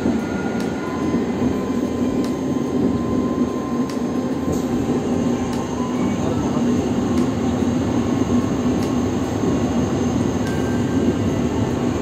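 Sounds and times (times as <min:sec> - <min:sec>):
locomotive rumble and hum: 0:00.0 - 0:12.0.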